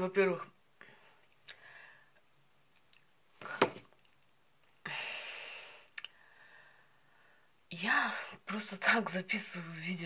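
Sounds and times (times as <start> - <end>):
woman breathing: 0.8 - 2.3, 4.8 - 8.4.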